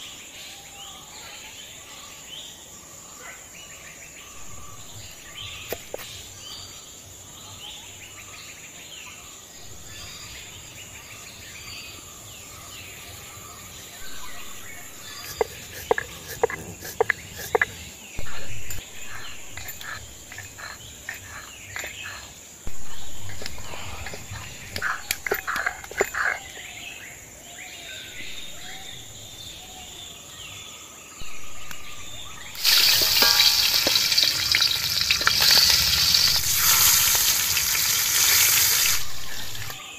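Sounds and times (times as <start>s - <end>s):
insect drone: 0.0s - 39.9s
bird calls: 9.6s - 39.9s
fish sizzling in hot oil: 32.5s - 39.8s.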